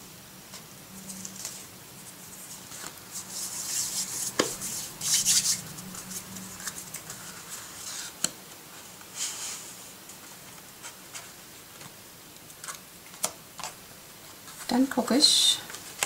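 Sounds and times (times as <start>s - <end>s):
paper rustling and scraping: 0.5s - 12.0s.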